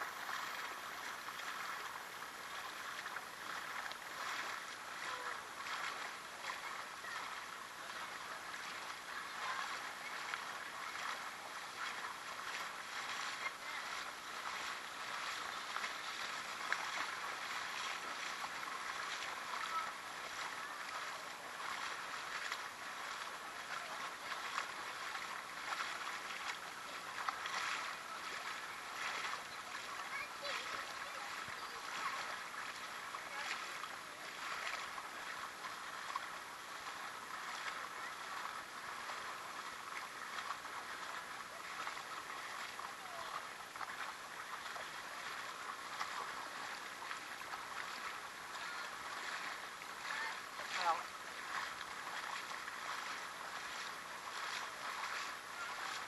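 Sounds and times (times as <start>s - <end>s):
creek water babbling: 0.0s - 56.0s.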